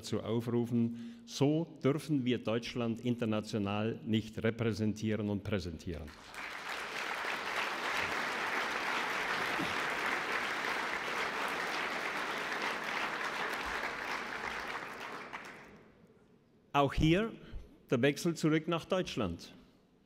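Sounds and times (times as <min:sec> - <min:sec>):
audience applauding: 0:06.1 - 0:15.8.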